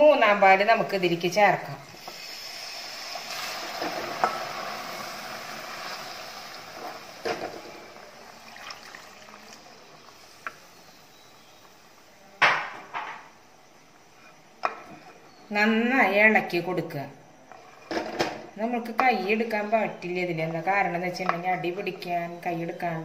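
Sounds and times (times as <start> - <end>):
liquid pouring into hot pot hissing: 2.0 - 12.2.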